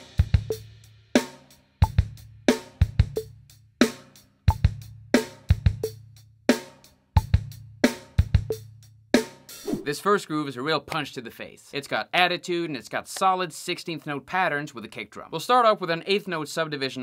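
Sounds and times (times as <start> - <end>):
snare drum backbeat: 9.6 - 9.9.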